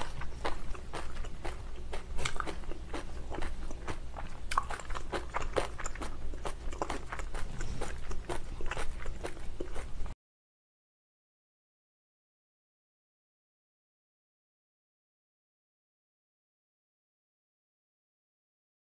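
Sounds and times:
person chewing food: 0.0s - 10.2s.

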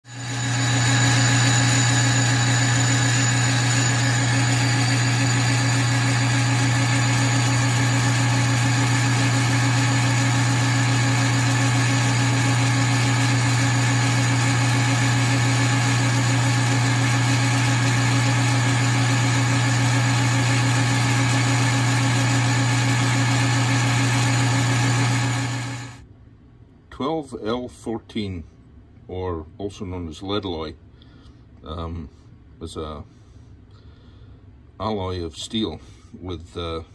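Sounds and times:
metal lathe cutting with whine: 0.0s - 26.0s.

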